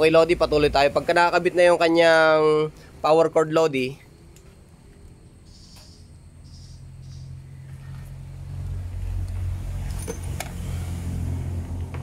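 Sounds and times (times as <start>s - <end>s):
low engine-like drone: 3.9s - 12.0s.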